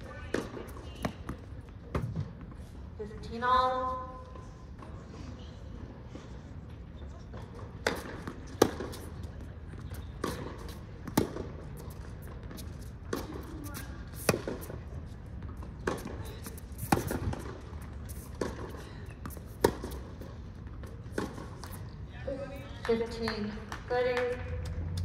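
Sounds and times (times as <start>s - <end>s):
tennis ball struck by racquets: 7.5s - 9.1s, 9.9s - 14.8s, 15.4s - 20.2s, 20.8s - 21.8s.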